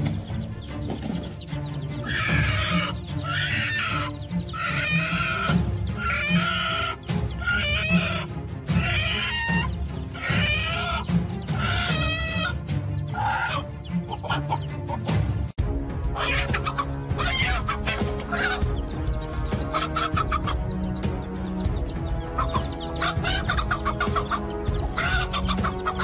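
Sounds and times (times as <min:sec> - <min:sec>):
background music: 0:00.0 - 0:26.0
hen squawking in alarm: 0:01.9 - 0:14.9, 0:16.1 - 0:18.8, 0:19.6 - 0:20.8, 0:22.3 - 0:26.0.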